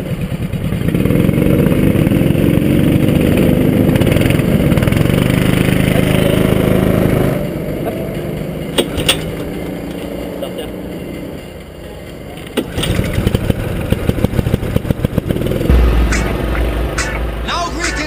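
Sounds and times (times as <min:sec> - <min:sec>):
go-kart engines revving and idling: 0:00.0 - 0:15.8
short sharp knock: 0:15.7 - 0:18.0.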